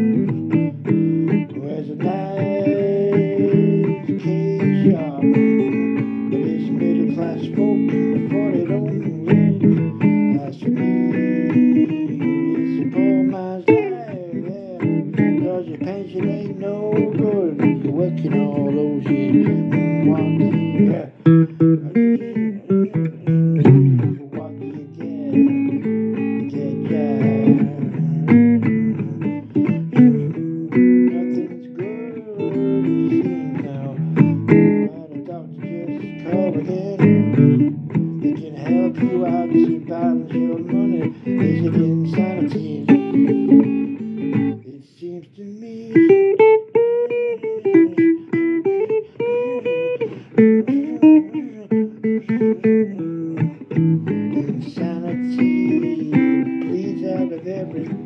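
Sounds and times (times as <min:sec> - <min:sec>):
guitar plucking single notes: 0:00.0 - 0:44.7, 0:45.8 - 0:58.0.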